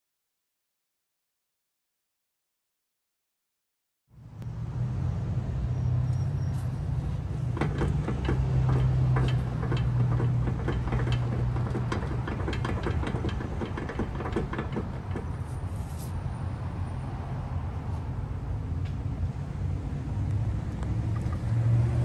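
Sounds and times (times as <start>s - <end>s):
suspension clunking and clicking: 6.9s - 16.0s.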